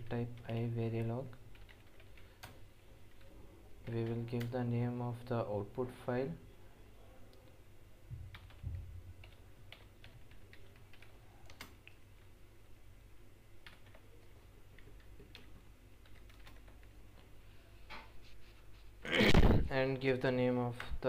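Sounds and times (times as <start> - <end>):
keyboard typing: 0.2 - 4.6, 8.3 - 12.3, 13.6 - 17.0.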